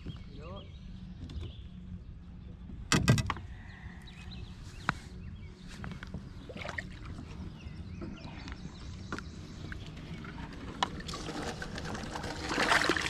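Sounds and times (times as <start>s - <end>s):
steady low hum: 0.0s - 13.0s
knocks and rattles on plastic kayak: 7.2s - 13.0s.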